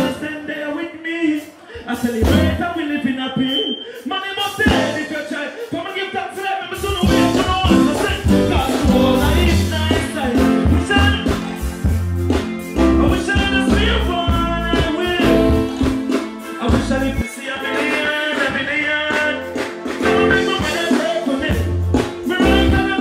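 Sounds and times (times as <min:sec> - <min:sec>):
backing track music: 0:00.0 - 0:00.7, 0:01.4 - 0:23.0
man singing into a microphone: 0:00.0 - 0:11.9, 0:12.8 - 0:23.0
heavy bass line: 0:02.2 - 0:02.8, 0:06.9 - 0:17.2, 0:20.0 - 0:23.0.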